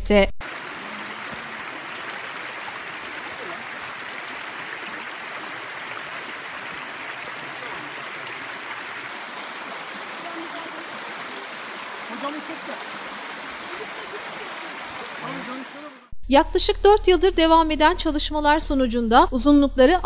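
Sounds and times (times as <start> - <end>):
stream rushing over stones: 0.4 - 16.1.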